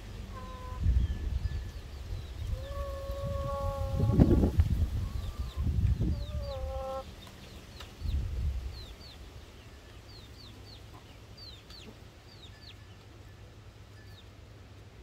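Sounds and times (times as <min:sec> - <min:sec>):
hens clucking: 0:00.0 - 0:00.9, 0:02.5 - 0:07.4
low rumbling on microphone: 0:00.0 - 0:07.0.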